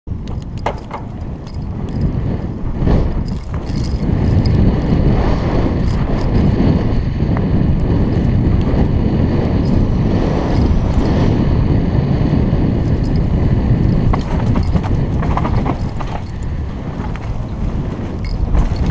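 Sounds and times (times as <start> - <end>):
tyres rolling on dirt: 0.1 - 6.3, 12.8 - 18.9
bike clicks and rattles: 0.1 - 18.9
wind rush on microphone: 0.1 - 18.9.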